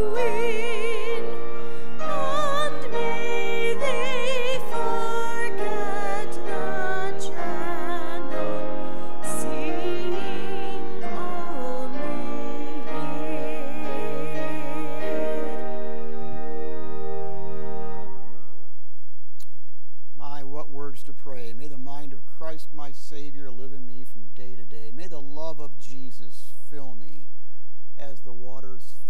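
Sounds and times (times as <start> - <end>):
solo voice singing hymn-like melody: 0.0 - 17.5
sustained accompaniment: 0.0 - 18.8.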